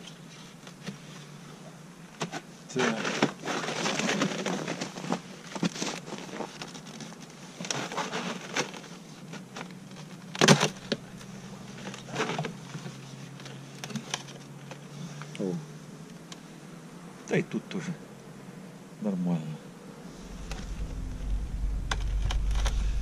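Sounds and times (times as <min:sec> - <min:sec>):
handling scrapes on plastic: 0:02.2 - 0:10.0
faint low hum: 0:19.5 - 0:23.0.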